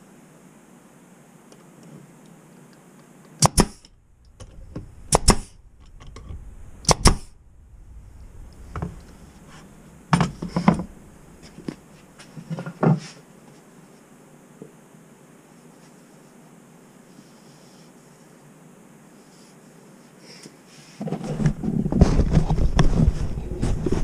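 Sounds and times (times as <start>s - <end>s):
nail gun firing into wood: 3.4s - 3.9s, 5.1s - 5.5s, 6.8s - 7.3s.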